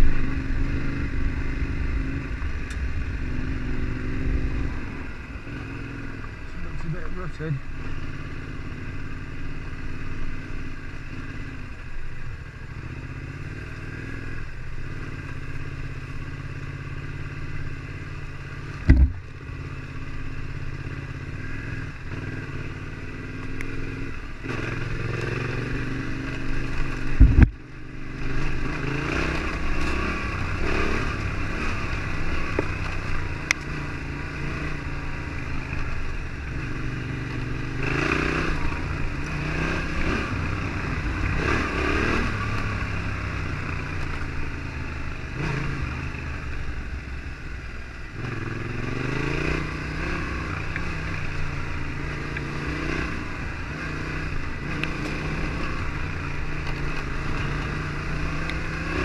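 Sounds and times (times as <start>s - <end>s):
motorcycle engine running: 0.0s - 59.0s
loud thumps: 18.8s - 19.3s, 27.2s - 27.6s.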